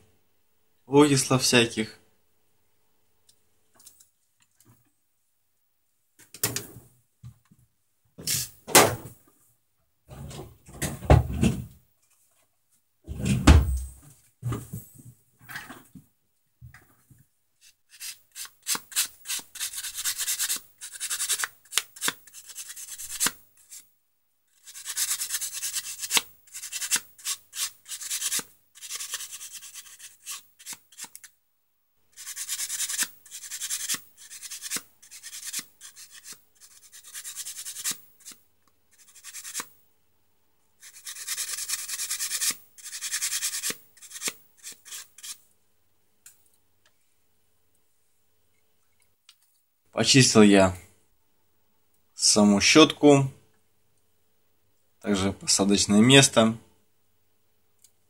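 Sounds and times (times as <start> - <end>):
scraping and rubbing strokes: 17.6 - 23.8, 24.5 - 31.3, 32.2 - 39.8, 40.8 - 45.4.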